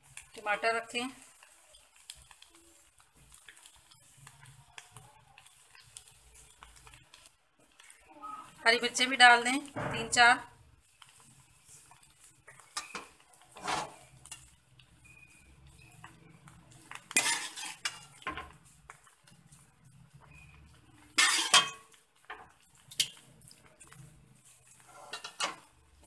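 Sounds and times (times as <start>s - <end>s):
spoon scraping steel pot: 11.9s - 14.5s, 17.0s - 18.5s, 21.2s - 21.9s, 24.7s - 25.7s.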